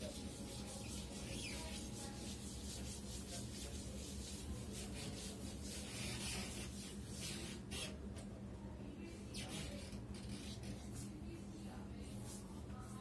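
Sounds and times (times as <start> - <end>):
duster rubbing on chalkboard: 0.0 - 8.0.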